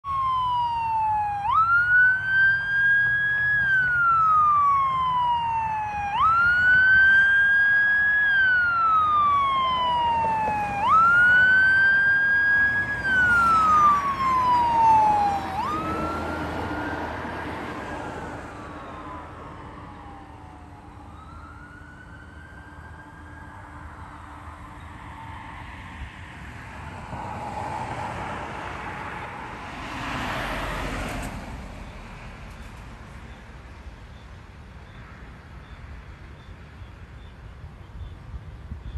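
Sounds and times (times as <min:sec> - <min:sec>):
fire engine siren wailing: 0:00.0 - 0:26.1
engine and road noise: 0:00.0 - 0:38.9.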